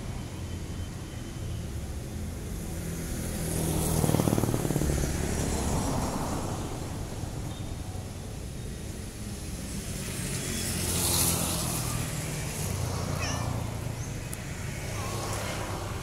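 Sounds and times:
road traffic passing: 0:00.0 - 0:16.0
cat meow: 0:12.9 - 0:14.0.

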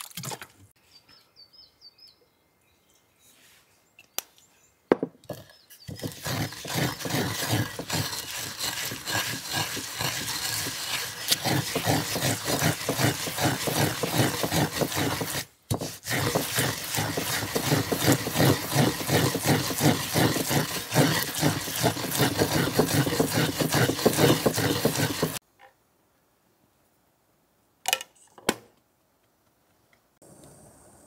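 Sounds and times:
pestle grinding seeds in mortar: 0:05.2 - 0:25.4.

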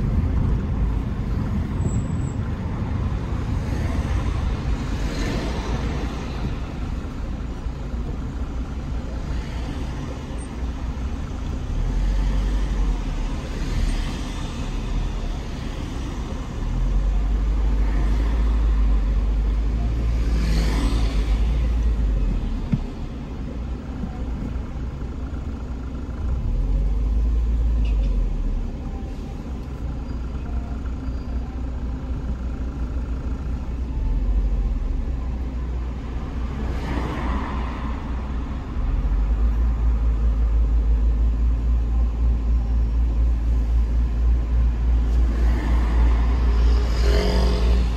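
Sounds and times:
car engine rumble in traffic: 0:00.0 - 0:47.9
cars swishing past: 0:45.1 - 0:47.9.

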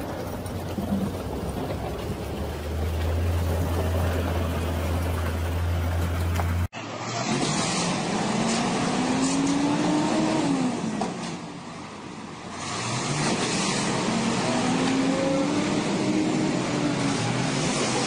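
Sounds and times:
truck diesel engine revving: 0:00.0 - 0:10.9.

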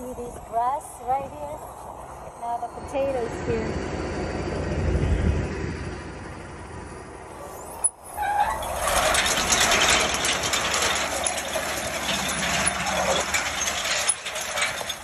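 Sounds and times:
engine drone: 0:01.6 - 0:15.0
conveyor chain clattering: 0:07.4 - 0:15.0.

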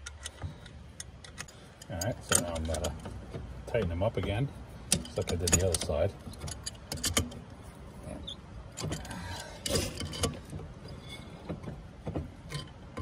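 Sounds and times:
wrench clinking on steel nuts: 0:00.0 - 0:07.5.

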